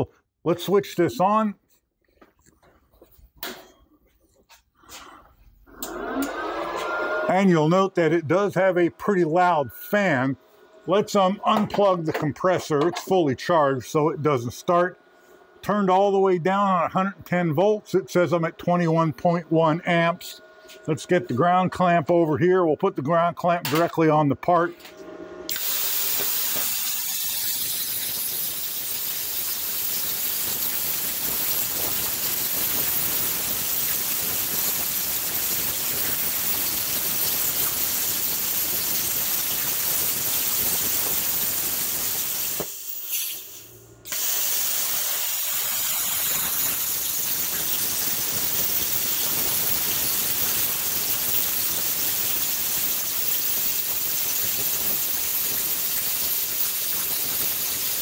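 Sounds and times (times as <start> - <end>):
plasma cutter hissing: 25.5 - 58.0.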